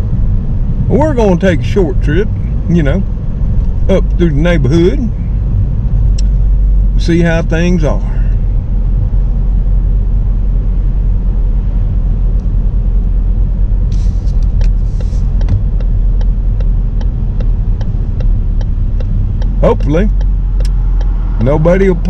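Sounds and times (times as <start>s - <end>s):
car engine and road rumble: 0.0s - 22.0s
turn signal ticking: 2.2s - 7.9s, 12.3s - 22.0s.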